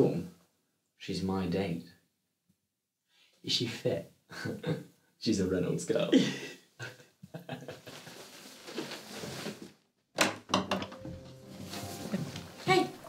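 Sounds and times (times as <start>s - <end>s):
quiet shuffling movement: 7.8s - 9.7s, 11.1s - 13.0s.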